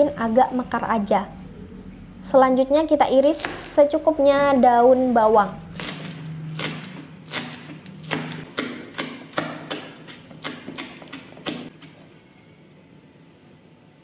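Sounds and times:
knife chopping on cutting board: 0:05.7 - 0:12.0.

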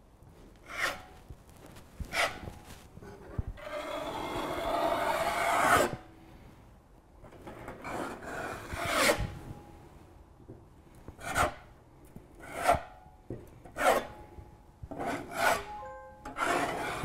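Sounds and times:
putty knife scraping: 0:00.6 - 0:01.2, 0:02.0 - 0:06.0, 0:07.4 - 0:09.4, 0:11.2 - 0:11.7, 0:12.4 - 0:13.0, 0:13.6 - 0:14.2, 0:14.9 - 0:17.0.

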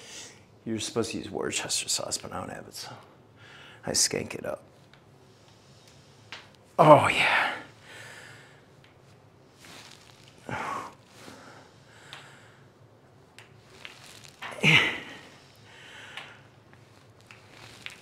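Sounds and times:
man breathing hard: 0:14.6 - 0:16.5.

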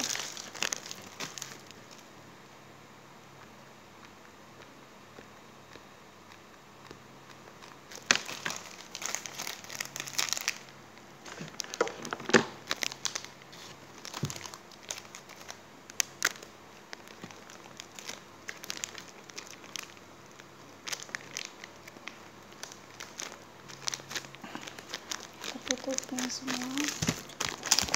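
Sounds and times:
plastic packets crinkling: 0:00.0 - 0:02.0, 0:07.9 - 0:27.9.

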